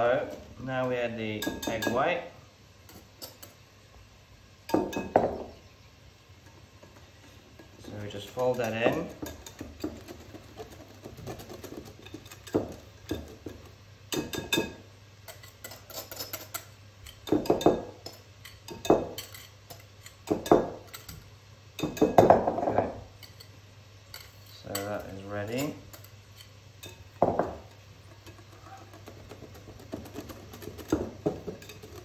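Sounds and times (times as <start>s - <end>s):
utensil scraping a mixing bowl: 6.9s - 13.8s, 27.7s - 32.0s.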